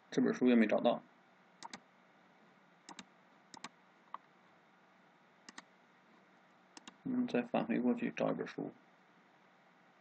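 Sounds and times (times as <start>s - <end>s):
computer mouse clicks: 1.6s - 1.8s, 2.9s - 4.2s, 5.5s - 5.7s, 6.8s - 7.0s.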